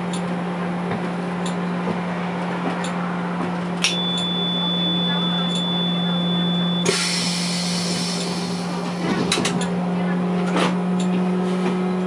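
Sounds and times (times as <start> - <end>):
continuous high beep: 3.8 - 7.7.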